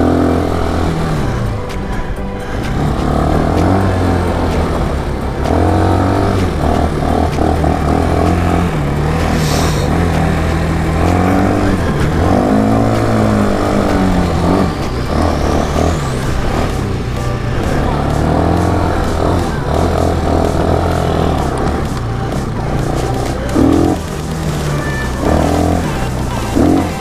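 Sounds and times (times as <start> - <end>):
quad bike engine revving: 0.0 - 27.0
brief hiss: 9.2 - 10.0.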